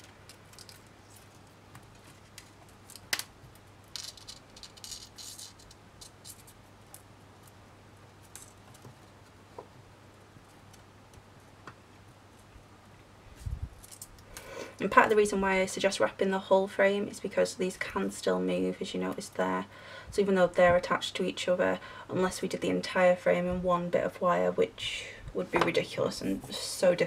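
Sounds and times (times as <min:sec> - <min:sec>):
metal wire ticks and scratches: 0:00.0 - 0:07.6
low steady hum: 0:00.0 - 0:27.0.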